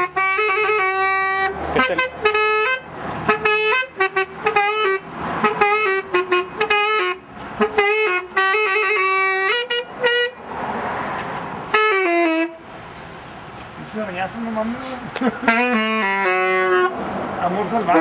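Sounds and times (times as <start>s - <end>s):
saxophone playing a melody: 0.0s - 10.4s, 11.7s - 12.6s, 15.3s - 17.0s.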